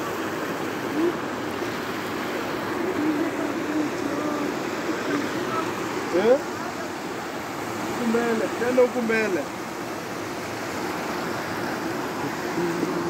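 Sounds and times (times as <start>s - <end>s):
river water rushing over rocks: 0.0s - 13.0s
faint voices: 0.8s - 1.4s, 2.7s - 7.3s, 11.6s - 13.0s.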